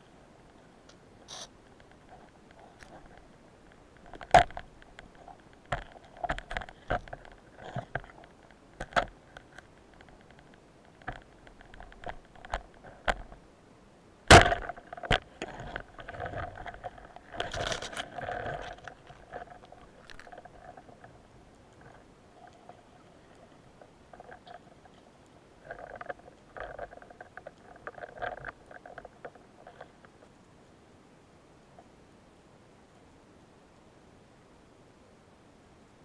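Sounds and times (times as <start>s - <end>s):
clicks and knocks against rock: 1.7s - 13.4s, 14.3s - 21.2s
speargun firing crack: 14.3s - 14.8s.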